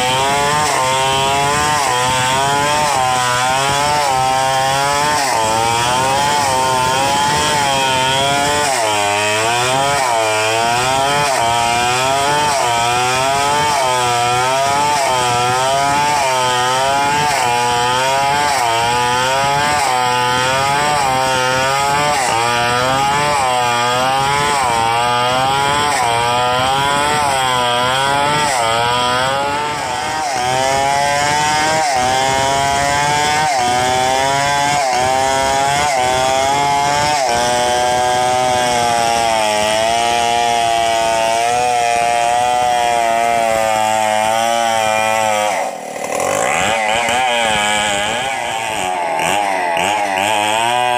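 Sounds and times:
chainsaw cutting log: 0.0s - 50.9s.

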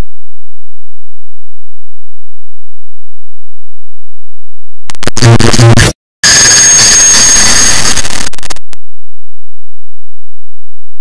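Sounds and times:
distorted digital noise: 4.9s - 8.7s
thin high whine: 5.2s - 8.4s.

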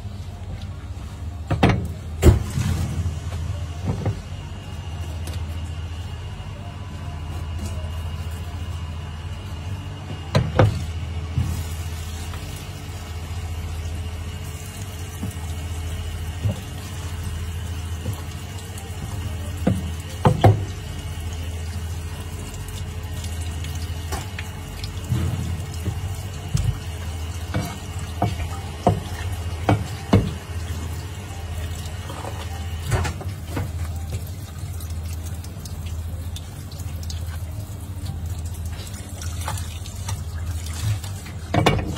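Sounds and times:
tap water running into sink: 14.8s - 41.9s.

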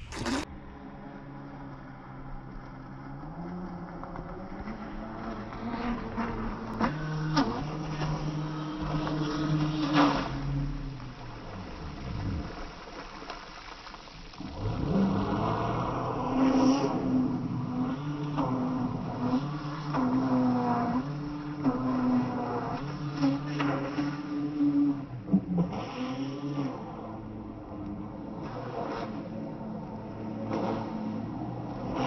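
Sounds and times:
rc boat motor buzzing: 0.0s - 32.0s
water splashing: 0.0s - 32.0s.

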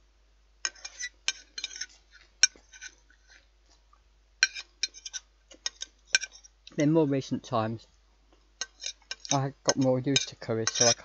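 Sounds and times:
cutlery scraping a plate: 0.7s - 3.4s, 4.4s - 6.6s, 8.6s - 11.0s.

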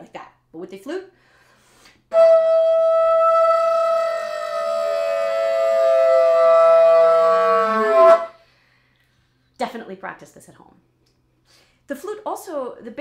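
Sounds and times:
bass flute long note: 2.1s - 8.3s
voice gliding downward: 2.1s - 8.3s.

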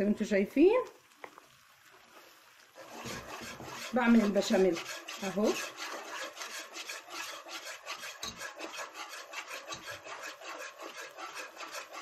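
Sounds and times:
whisk scraping metal pot: 2.8s - 12.0s.

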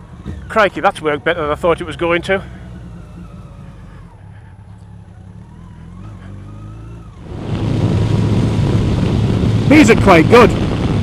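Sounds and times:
motorcycle engine running: 0.0s - 11.0s
wind noise on microphone: 7.2s - 11.0s.

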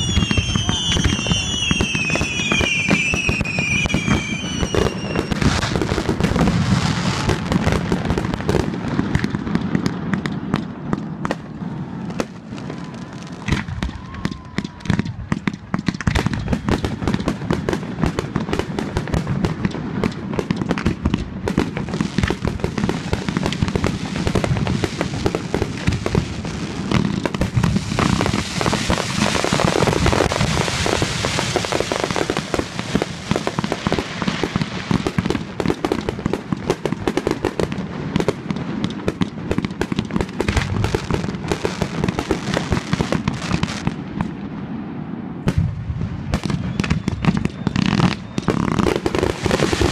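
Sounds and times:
fireworks bursting and crackling: 0.0s - 49.9s.

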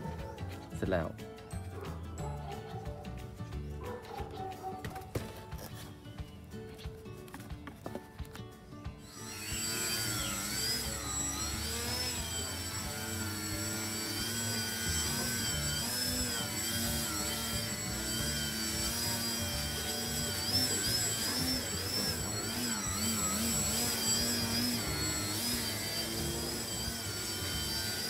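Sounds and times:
model plane propeller whine: 9.1s - 28.0s.

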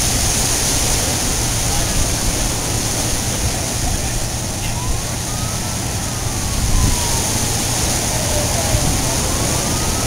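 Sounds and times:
surf: 0.0s - 10.0s
wind: 0.0s - 10.0s
faint emergency vehicle siren: 3.6s - 10.0s.

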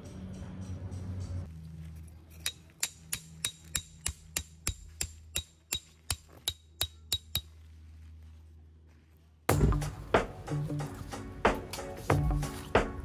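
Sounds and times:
hammer striking metal tent peg: 2.4s - 7.5s.

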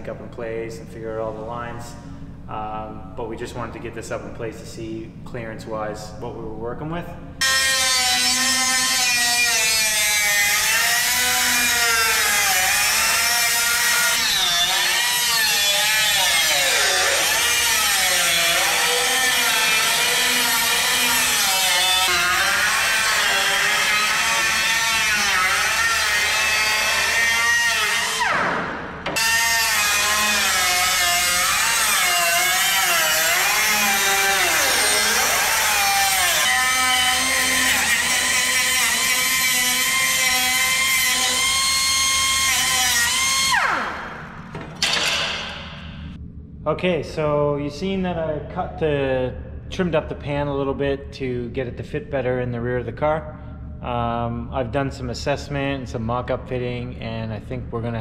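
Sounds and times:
air cut-off wheel cutting steel: 29.2s - 44.2s.

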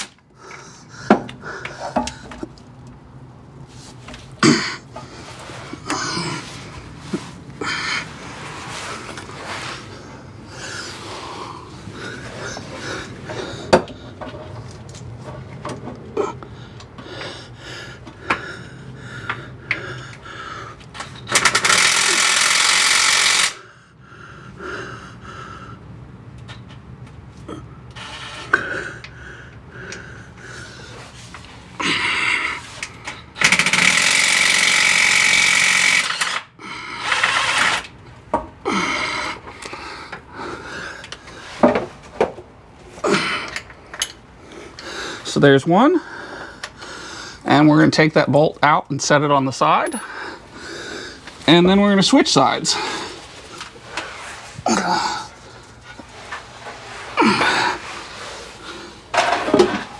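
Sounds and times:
power wrench buzzing: 21.0s - 23.6s, 27.9s - 28.6s, 32.7s - 38.0s
metal tools clicking and knocking: 43.5s - 44.2s.

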